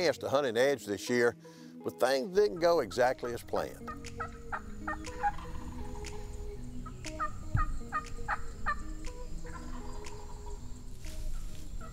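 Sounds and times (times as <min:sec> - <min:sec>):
wild turkey calling: 0:02.5 - 0:11.9.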